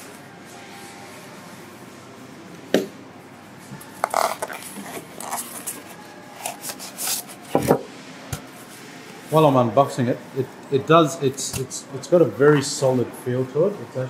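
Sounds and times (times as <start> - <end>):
foam packing and plastic bag handled: 3.9 - 7.8.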